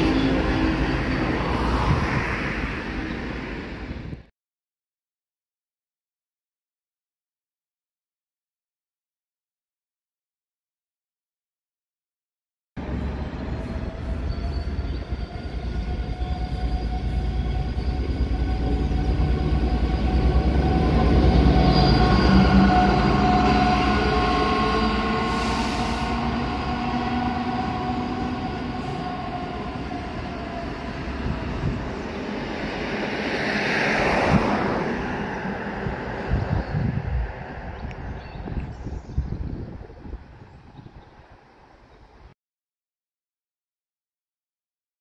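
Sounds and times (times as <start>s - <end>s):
diesel locomotive passing: 0.0s - 4.3s, 12.8s - 38.7s.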